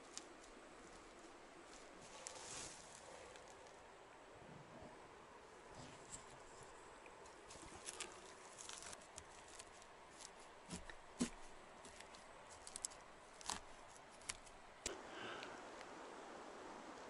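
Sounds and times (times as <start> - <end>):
dry moss crackling: 0.0 - 3.9, 5.7 - 15.9.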